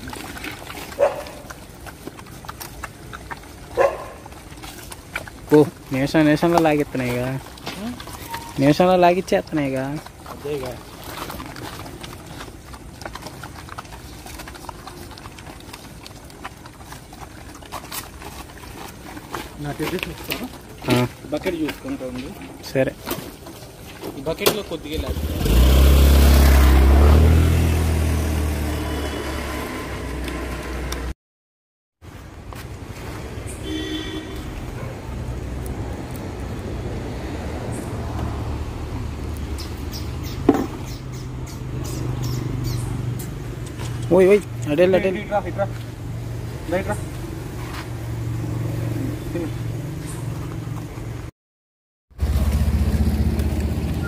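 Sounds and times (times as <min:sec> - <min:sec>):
dogs chewing and lapping: 0:00.0 - 0:31.1, 0:32.1 - 0:51.3, 0:52.2 - 0:54.0
low engine hum: 0:34.5 - 0:51.3, 0:52.2 - 0:54.0.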